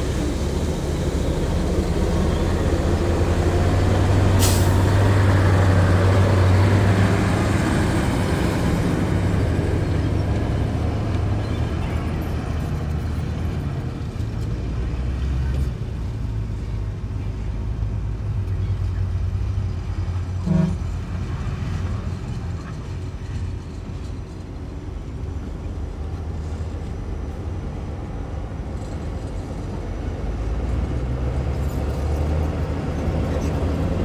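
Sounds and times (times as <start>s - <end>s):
heavy diesel machinery engine: 0.0s - 34.0s
sharp hiss of air: 4.4s - 4.8s.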